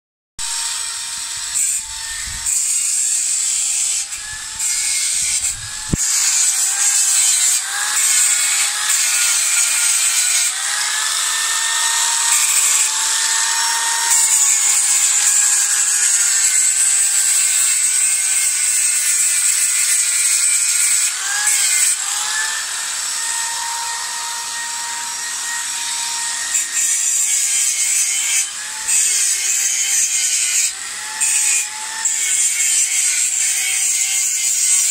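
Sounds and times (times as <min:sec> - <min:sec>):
grinding hiss on steel: 0:00.4 - 0:22.0, 0:22.6 - 0:34.9
angle grinder whining: 0:00.4 - 0:34.9.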